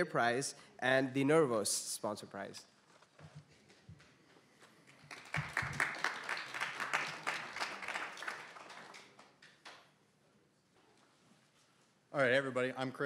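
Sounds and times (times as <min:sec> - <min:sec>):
audience applauding: 0:04.8 - 0:09.5.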